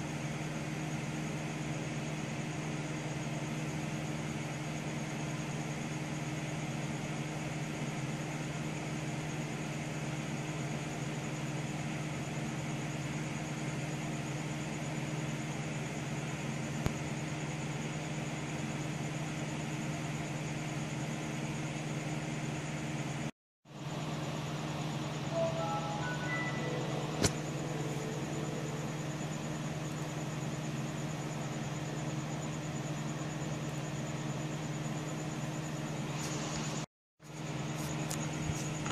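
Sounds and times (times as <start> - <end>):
computer fans humming: 24.0 - 32.1
low steady tone: 25.4 - 30.4.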